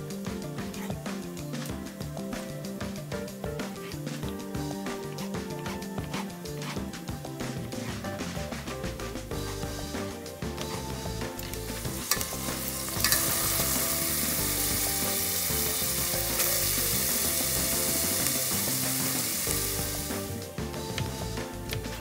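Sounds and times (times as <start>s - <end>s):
vegetables sizzling in oil: 10.7s - 22.0s.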